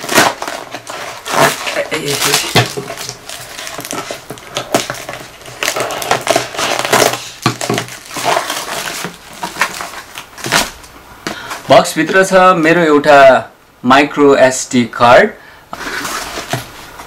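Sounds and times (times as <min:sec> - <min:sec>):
cardboard box tearing and crackling: 0:00.0 - 0:10.9.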